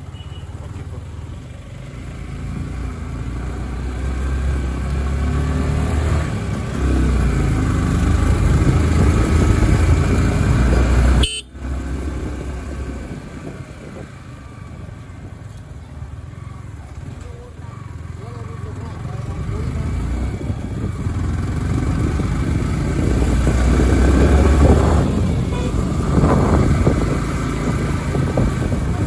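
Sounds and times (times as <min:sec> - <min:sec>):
wind buffeting microphone: 0:08.4 - 0:11.0, 0:20.2 - 0:29.0
motorcycle engine running: 0:15.8 - 0:29.0.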